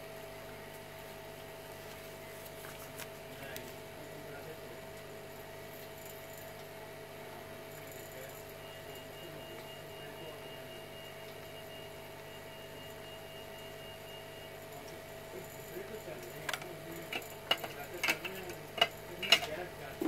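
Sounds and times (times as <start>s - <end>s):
electrical hum: 0.0s - 20.0s
faint high whine: 7.7s - 17.9s.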